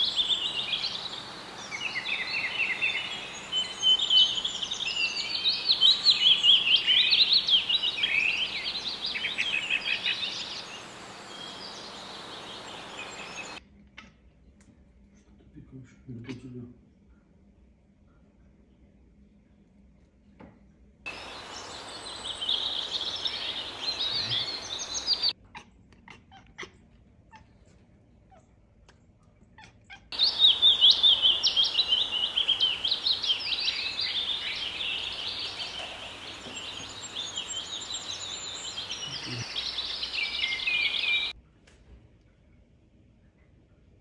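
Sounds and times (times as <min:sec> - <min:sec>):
small birds chirping: 0:00.0 - 0:13.6, 0:21.1 - 0:25.4, 0:29.5 - 0:41.4.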